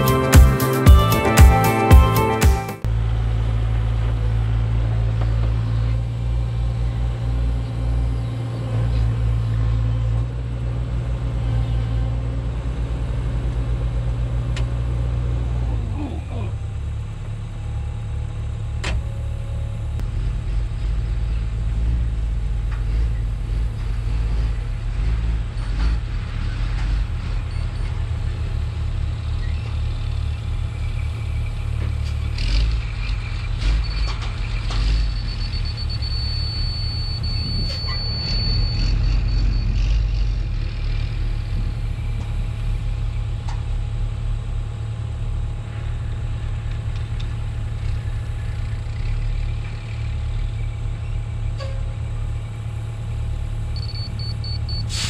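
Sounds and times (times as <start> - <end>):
excavator diesel engine droning: 0.0 - 55.0
thin high whistle: 35.2 - 39.8.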